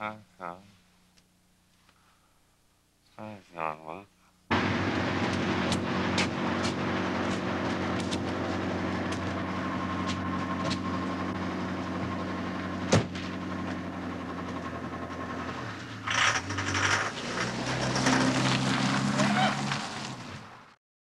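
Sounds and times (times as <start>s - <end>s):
steady engine hum: 4.5s - 20.7s.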